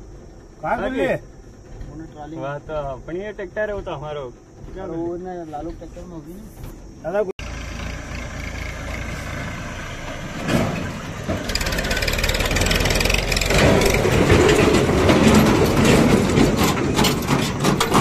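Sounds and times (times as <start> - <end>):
empty trailers rattling: 0.0 - 18.0
tractor engine running: 6.8 - 18.0.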